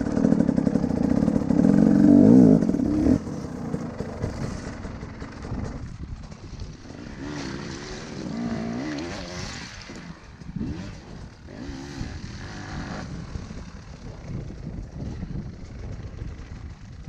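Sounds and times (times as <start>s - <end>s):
dirt bike engines revving: 0.0s - 17.0s.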